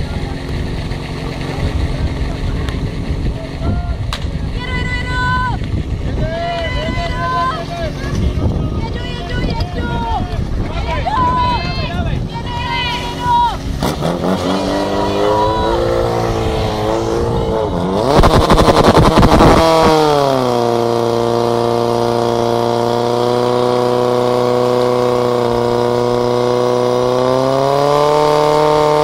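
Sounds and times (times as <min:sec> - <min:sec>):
pump engine revving: 0:00.0 - 0:03.6, 0:12.9 - 0:29.0.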